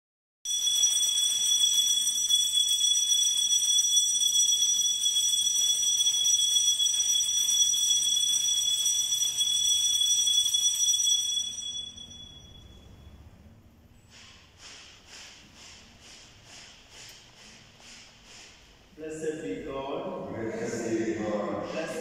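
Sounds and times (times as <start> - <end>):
small bells jingling: 0.5 - 13.2.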